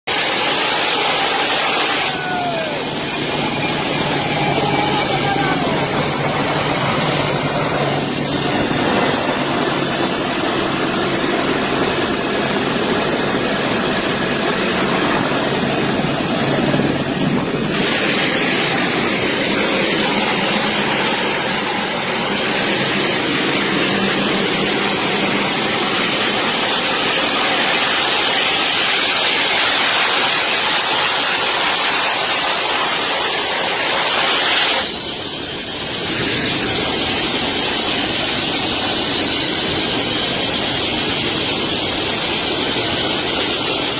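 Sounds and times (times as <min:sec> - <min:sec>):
jet engines running: 0:00.0 - 0:43.9
wind buffeting microphone: 0:03.0 - 0:27.4.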